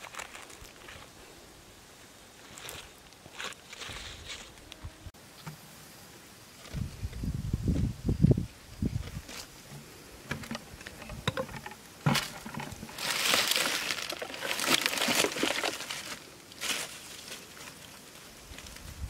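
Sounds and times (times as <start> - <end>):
mud and dead leaves crackling: 0.0 - 4.9, 8.9 - 19.0.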